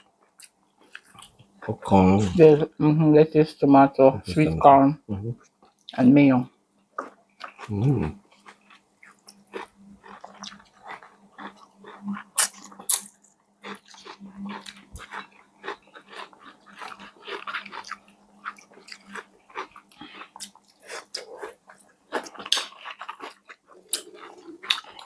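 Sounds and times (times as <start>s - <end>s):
crunching bites and chewing: 7.0s - 25.0s.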